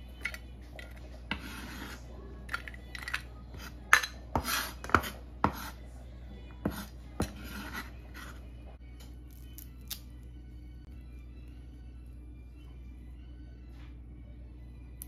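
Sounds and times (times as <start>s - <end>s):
cleaver scraping on cutting board: 1.3s - 2.0s, 4.4s - 5.8s, 6.7s - 8.4s.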